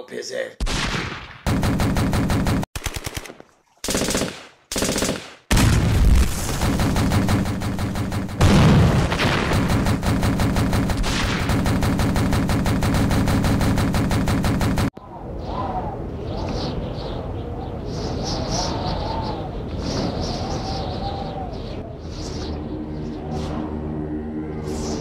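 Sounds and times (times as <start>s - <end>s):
machine-gun fire: 0.6s - 15.0s.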